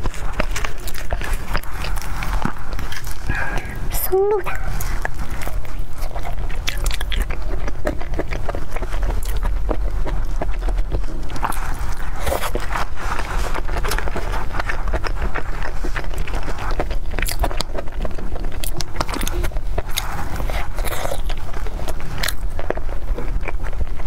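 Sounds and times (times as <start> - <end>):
chewing and wet mouth sounds: 0.0 - 24.0.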